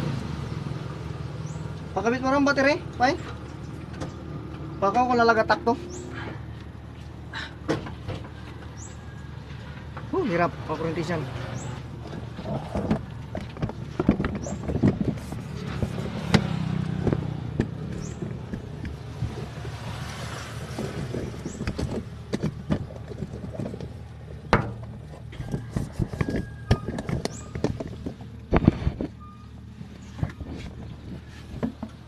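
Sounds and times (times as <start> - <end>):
low engine drone: 2.6 - 32.0
knocks and clunks on truck: 7.5 - 8.9, 11.6 - 32.0.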